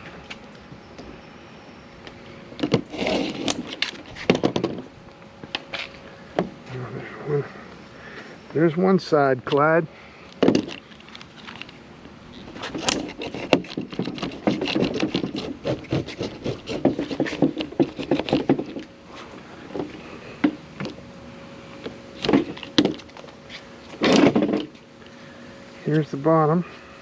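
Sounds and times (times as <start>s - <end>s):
spline roller clicking and crackling: 2.6s - 4.4s, 12.4s - 18.9s.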